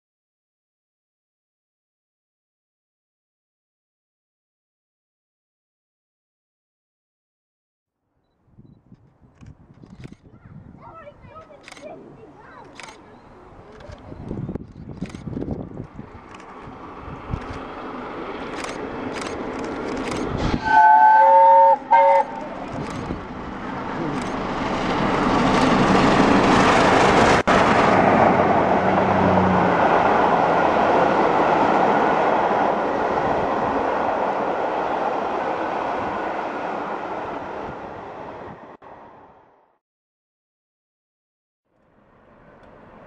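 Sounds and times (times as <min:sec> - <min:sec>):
steam locomotive exhaust: 0:20.3 - 0:23.1
steam whistle blasts: 0:20.6 - 0:22.4.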